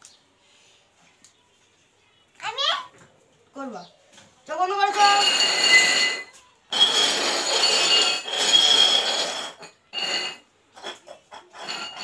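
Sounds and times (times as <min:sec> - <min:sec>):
tumblers clinking and knocking: 0:04.6 - 0:12.0
steel tumblers scraping on floor: 0:04.7 - 0:12.0.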